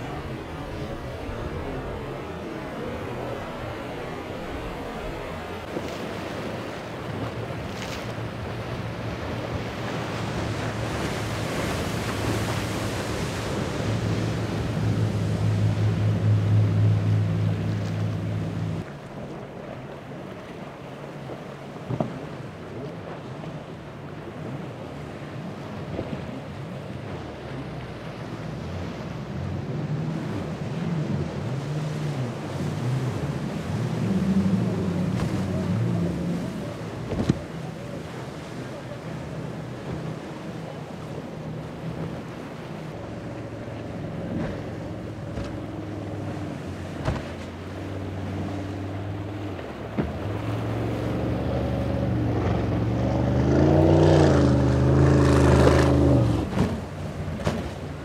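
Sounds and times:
powerboat engines droning: 0:00.0 - 0:58.0
waves rushing: 0:00.0 - 0:58.0
wind: 0:00.0 - 0:58.0.

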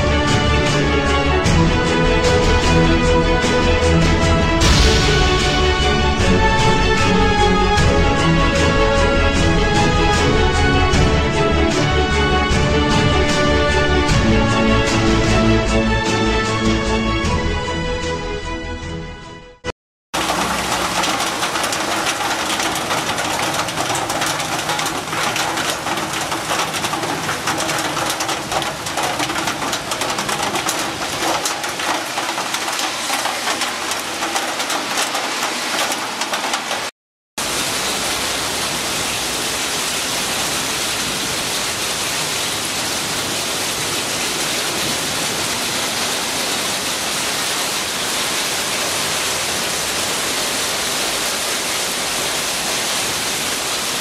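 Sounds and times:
heavy rain pouring: 0:00.0 - 0:17.4, 0:20.1 - 0:54.0
crackling drop impacts: 0:20.2 - 0:37.8.

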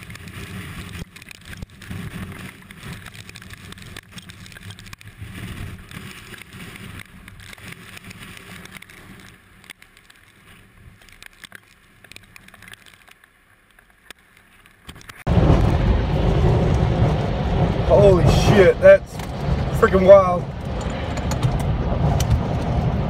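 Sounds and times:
strong wind buffeting microphone: 0:15.3 - 0:23.0.

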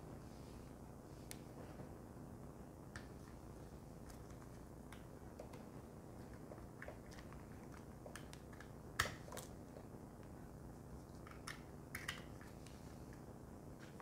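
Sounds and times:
faint room hiss: 0:00.0 - 0:14.0.

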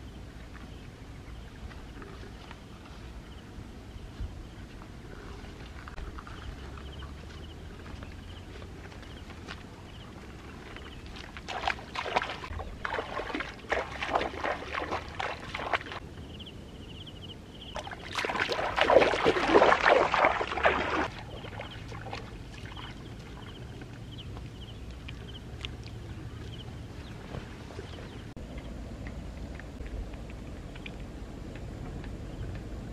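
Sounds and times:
water splashing from wading: 0:10.6 - 0:16.0, 0:17.7 - 0:28.4.

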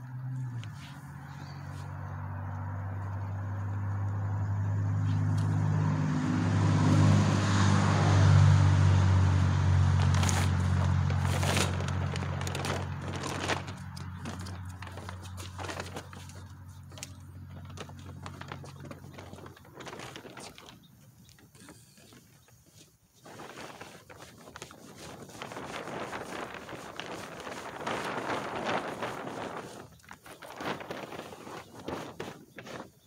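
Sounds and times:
vehicle engine humming: 0:00.0 - 0:23.0
plastic tarp and fabric rustling: 0:09.0 - 0:33.0.

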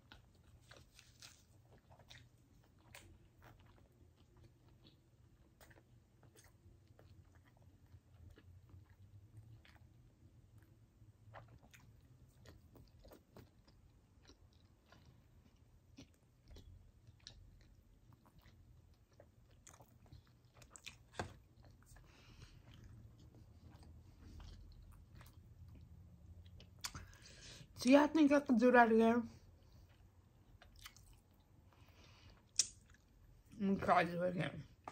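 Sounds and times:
faint chewing: 0:00.0 - 0:27.7, 0:29.3 - 0:33.9
mouth and finger clicks: 0:32.6 - 0:32.8.

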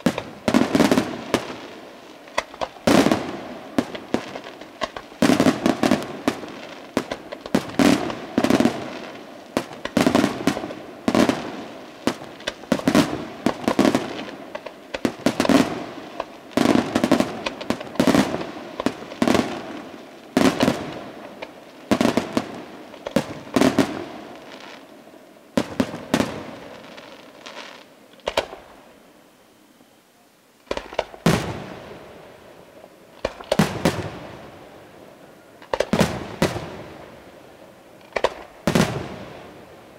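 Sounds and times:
single firework crack: 0:28.2 - 0:28.7, 0:33.2 - 0:34.2, 0:38.1 - 0:39.2
firework shells bursting: 0:33.2 - 0:34.1.

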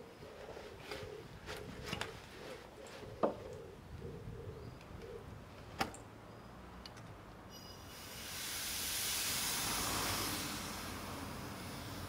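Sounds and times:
compressed air hissing: 0:07.6 - 0:12.0.

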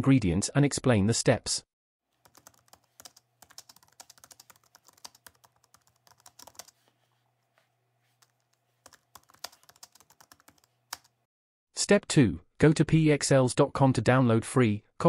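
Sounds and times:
computer keyboard typing: 0:02.2 - 0:06.9, 0:08.2 - 0:11.2.

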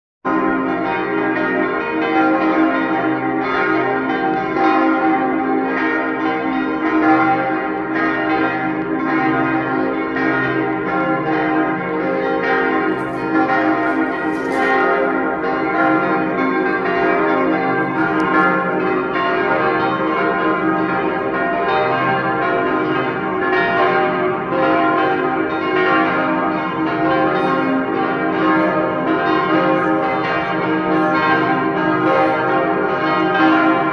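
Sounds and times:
church bells pealing: 0:00.3 - 0:33.9.

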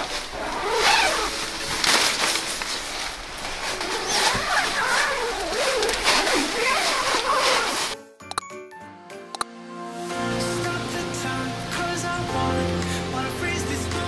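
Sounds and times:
nylon fabric rustling: 0:00.0 - 0:08.0
tent zipper pulled open: 0:00.0 - 0:08.0.

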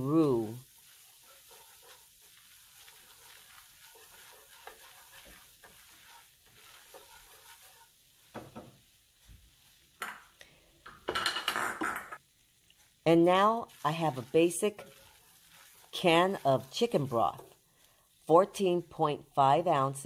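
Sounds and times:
whisk scraping a pan: 0:00.0 - 0:10.0, 0:12.8 - 0:18.6
roux sizzling: 0:00.0 - 0:20.0.

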